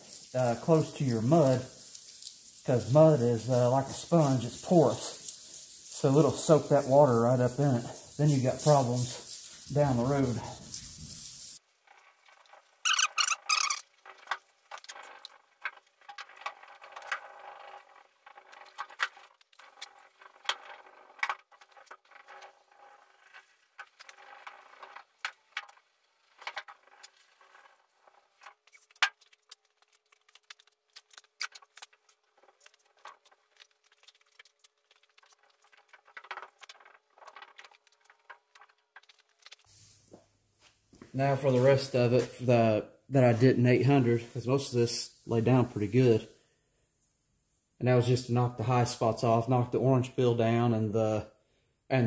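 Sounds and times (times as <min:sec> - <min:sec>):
wet sanding of sheet metal: 0:00.0 - 0:11.6.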